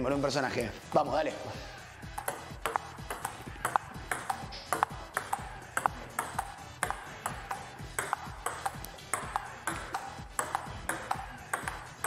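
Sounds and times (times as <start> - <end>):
table tennis ball clicking: 2.2 - 12.0.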